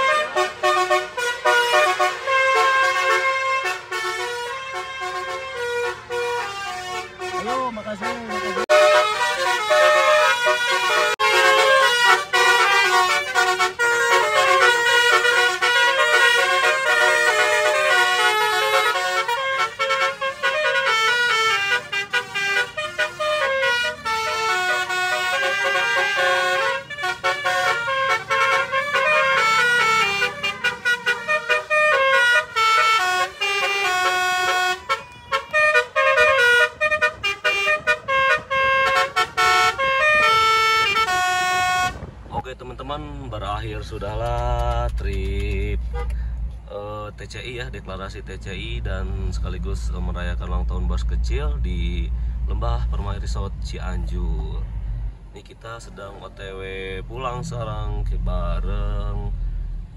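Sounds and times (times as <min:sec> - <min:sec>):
multi-tone car horn melody: 0:00.0 - 0:42.1, 0:45.8 - 0:46.2.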